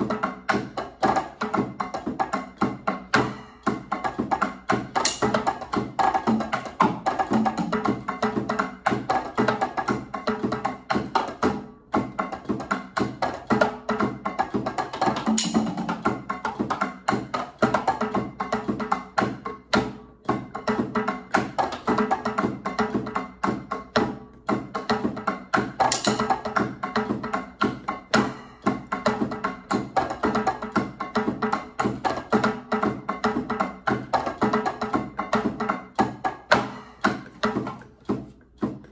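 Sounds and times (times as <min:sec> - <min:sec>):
electronic drum kit groove: 0:00.0 - 0:38.9.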